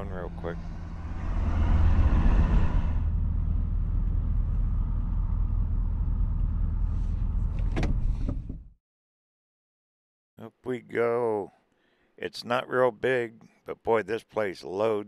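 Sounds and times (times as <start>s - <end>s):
tyre and road noise: 0.0s - 8.1s
engine idling: 3.0s - 7.6s.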